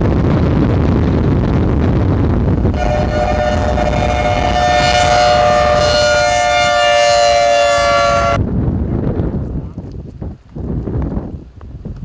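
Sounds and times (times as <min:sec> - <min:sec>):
wind rumbling on microphone: 0:00.0 - 0:12.0
two-note warning siren wail: 0:02.8 - 0:08.4.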